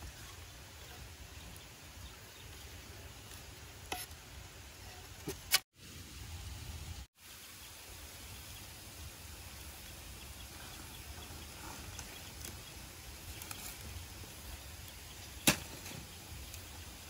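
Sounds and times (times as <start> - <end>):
faint steady hiss: 0.0 - 17.0.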